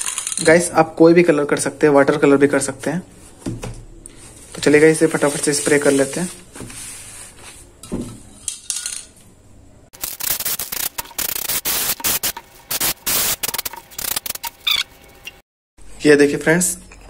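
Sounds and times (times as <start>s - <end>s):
spray-paint can hissing: 10.0s - 14.8s.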